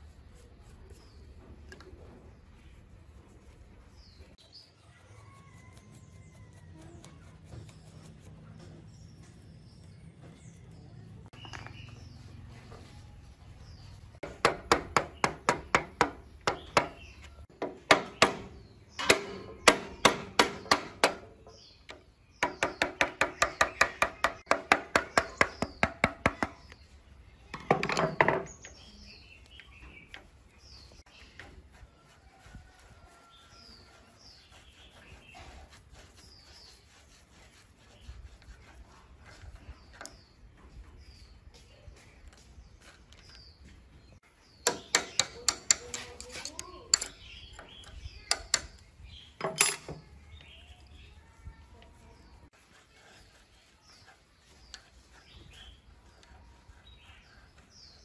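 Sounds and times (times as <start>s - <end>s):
birds chirping: 0.0s - 58.0s
hammer striking metal: 17.9s - 21.3s.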